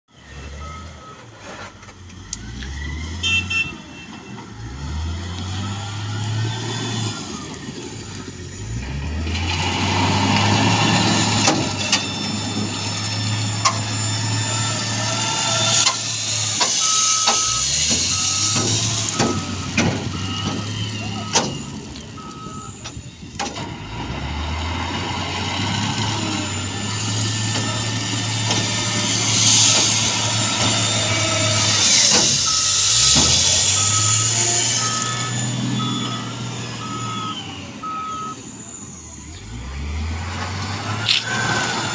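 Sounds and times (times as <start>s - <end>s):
diesel engine revving: 0.1s - 41.9s
reversing alarm beeping: 0.2s - 1.4s, 4.6s - 9.0s, 10.6s - 23.0s, 25.9s - 39.2s, 40.8s - 41.9s.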